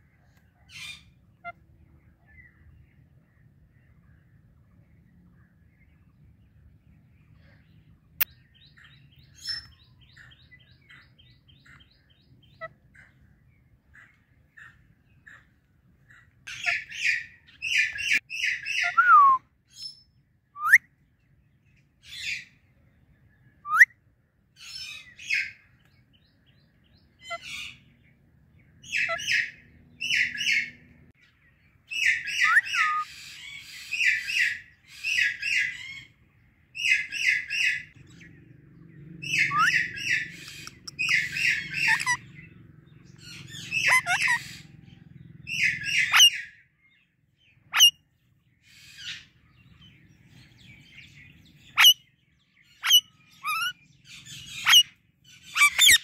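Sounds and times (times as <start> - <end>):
parakeets chirping harshly: 39.2 - 42.5, 43.2 - 44.8, 45.5 - 46.6, 47.7 - 47.9, 51.5 - 56.0.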